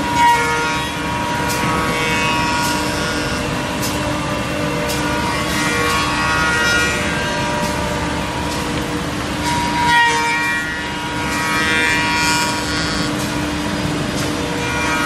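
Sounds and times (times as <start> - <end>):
woodworking machinery humming: 0.0 - 15.0.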